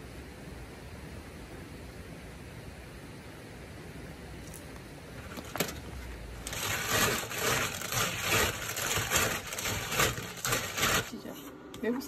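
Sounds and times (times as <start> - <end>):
clam shells scrubbed in steel bowl: 6.4 - 11.3.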